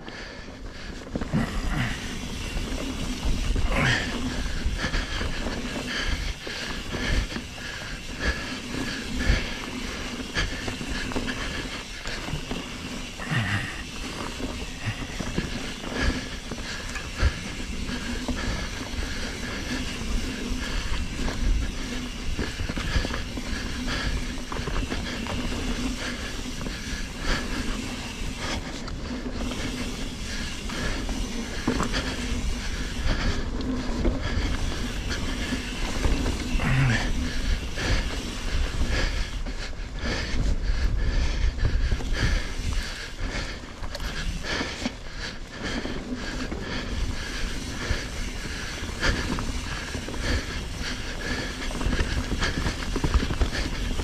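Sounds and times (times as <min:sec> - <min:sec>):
bike rattling over bumps: 0:00.0 - 0:54.0
knobby tyres humming on dirt: 0:00.0 - 0:54.0.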